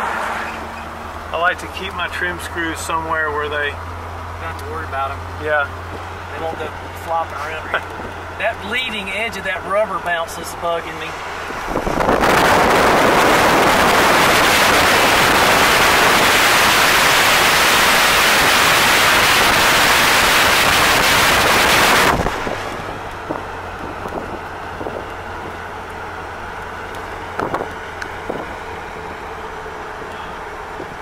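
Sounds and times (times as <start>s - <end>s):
car engine and road hum: 0.0s - 31.0s
wind rushing over microphone: 11.1s - 25.6s, 27.4s - 28.6s.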